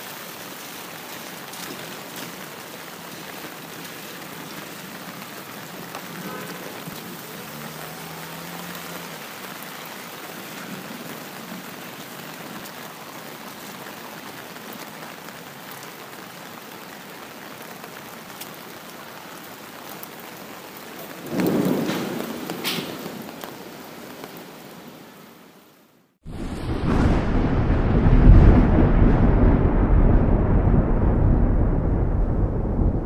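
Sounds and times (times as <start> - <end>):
steady rain hiss: 0.0 - 28.7
raindrop ticks: 0.2 - 24.4.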